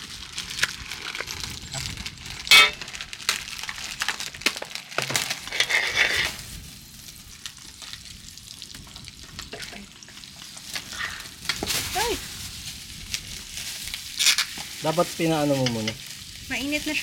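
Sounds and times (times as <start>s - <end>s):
butter sizzling on pan: 4.0s - 17.0s.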